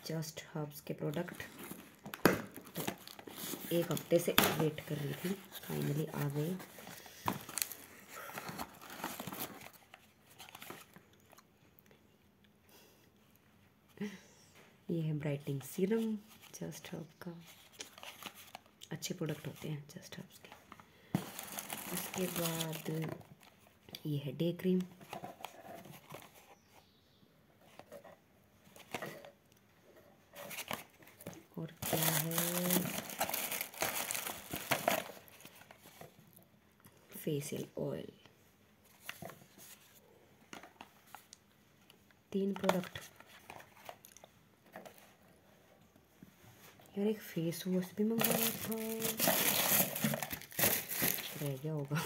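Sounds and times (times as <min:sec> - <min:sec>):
packaging crinkling: 0:01.3 - 0:11.4, 0:21.2 - 0:23.6, 0:30.4 - 0:36.1, 0:48.1 - 0:51.6
cardboard box handled: 0:21.2 - 0:23.2
cardboard box being torn open: 0:48.2 - 0:51.4.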